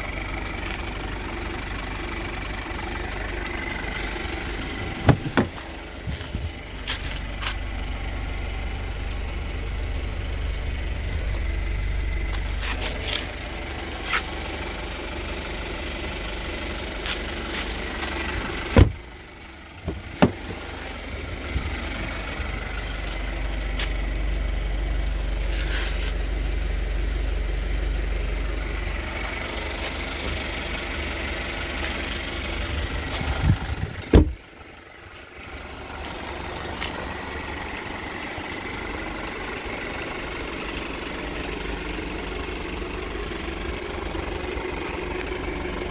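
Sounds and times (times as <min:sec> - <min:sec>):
car engine idling: 0:00.0 - 0:45.9
car doors thumping shut: 0:04.9 - 0:05.6, 0:18.7 - 0:19.0, 0:19.8 - 0:20.6, 0:34.0 - 0:34.4.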